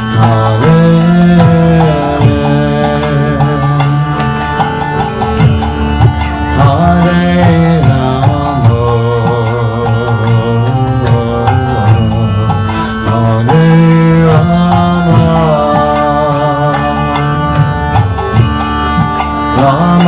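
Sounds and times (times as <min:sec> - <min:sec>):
hand drum beats: 0:00.0 - 0:20.0
harmonium chords: 0:00.0 - 0:20.0.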